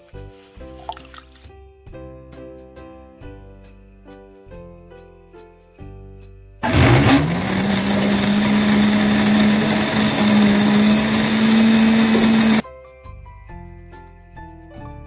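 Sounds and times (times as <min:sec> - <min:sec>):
blender motor humming: 0:06.6 - 0:12.6.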